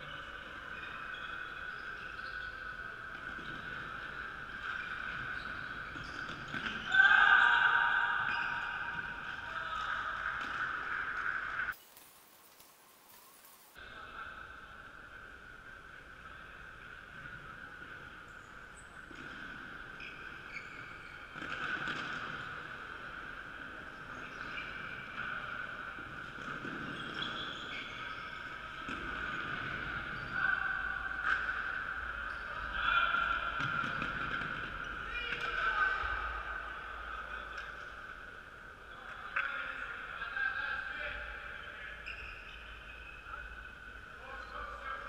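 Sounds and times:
sneaker squeaks: 0:00.0 - 0:10.6, 0:18.3 - 0:22.6, 0:24.1 - 0:25.4, 0:26.4 - 0:30.6, 0:41.6 - 0:43.6
steady hiss: 0:11.7 - 0:14.0.

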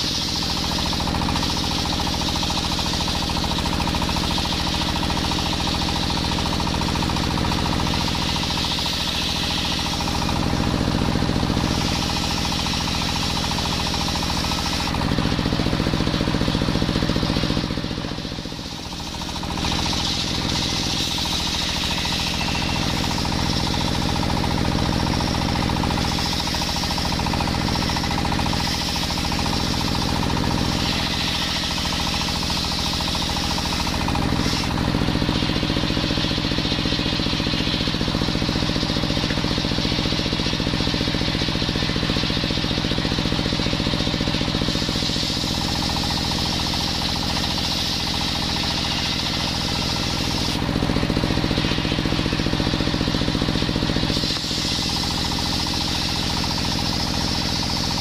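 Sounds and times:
stationary engine running: 0:00.0 - 0:58.0
circular saw blade ripping wood: 0:18.6 - 0:40.0.

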